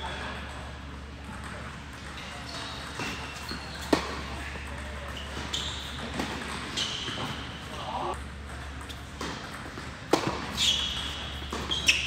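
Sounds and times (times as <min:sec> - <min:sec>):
sneaker squeaks: 0:02.0 - 0:08.0, 0:10.1 - 0:12.0
tennis ball struck and bouncing: 0:08.5 - 0:12.0.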